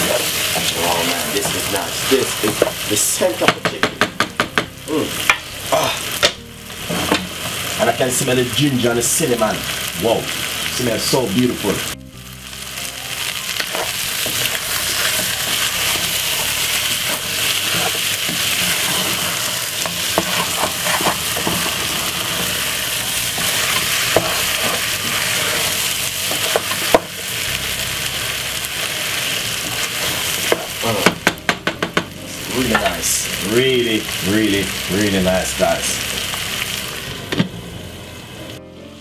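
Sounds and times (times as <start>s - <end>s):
wooden spoon stirring: 0.0s - 3.7s, 13.6s - 27.1s, 28.6s - 33.6s
chicken sizzling in a pot: 0.0s - 39.0s
spoon knocking against pot: 31.1s - 32.1s.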